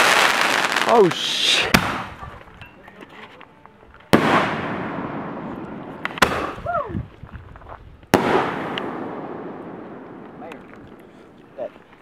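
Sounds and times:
fireworks banging with echo: 0:00.0 - 0:02.6, 0:04.1 - 0:06.6, 0:08.1 - 0:10.9.

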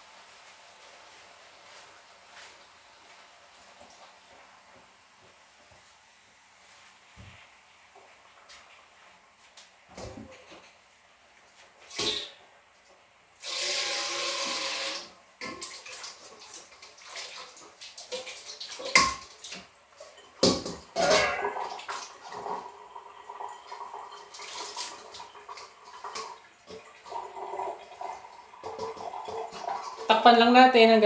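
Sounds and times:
water pouring: 0:13.4 - 0:30.2
kitchen utensils clattering: 0:18.8 - 0:26.4.

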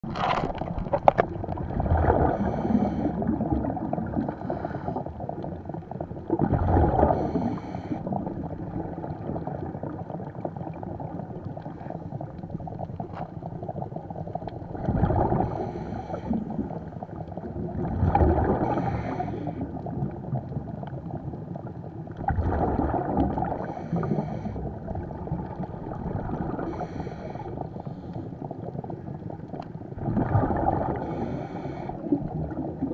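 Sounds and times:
exhaled bubbles rumbling: 0:00.0 - 0:32.9
underwater rumble: 0:00.0 - 0:32.9
hissing regulator inhales: 0:02.3 - 0:03.2, 0:04.3 - 0:05.1, 0:07.1 - 0:08.1, 0:15.5 - 0:16.5, 0:18.6 - 0:19.7, 0:23.6 - 0:24.7, 0:26.6 - 0:28.3, 0:31.0 - 0:32.2.

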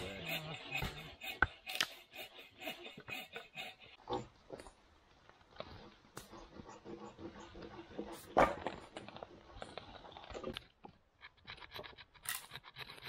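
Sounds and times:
knife shaving dry stick: 0:00.0 - 0:04.0.

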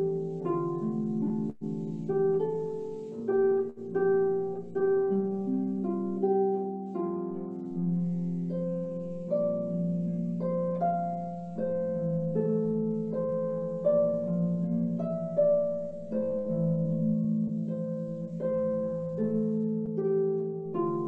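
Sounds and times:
solo harp playing slow tune: 0:00.0 - 0:21.0.

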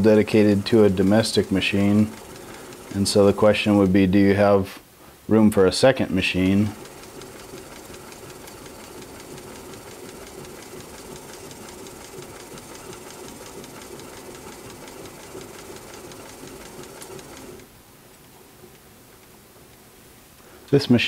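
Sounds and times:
sewing machine stitching: 0:00.0 - 0:04.4, 0:06.1 - 0:17.7.

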